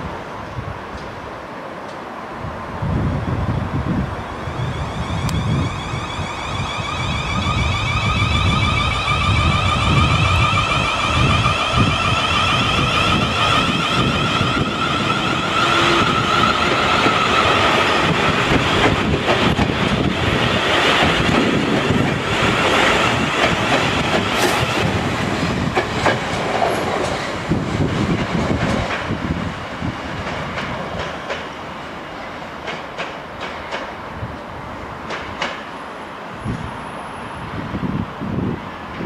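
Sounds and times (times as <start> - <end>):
train high whine: 0.0 - 39.0
train wheels clicking over rail joints: 10.7 - 34.0, 35.0 - 35.7.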